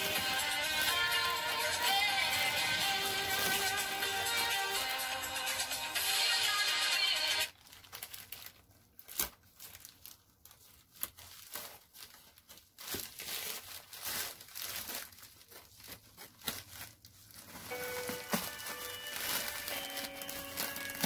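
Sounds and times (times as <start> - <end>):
plastic bags crinkling: 0.0 - 5.4, 7.5 - 21.0
background music: 0.0 - 7.5, 17.7 - 21.0.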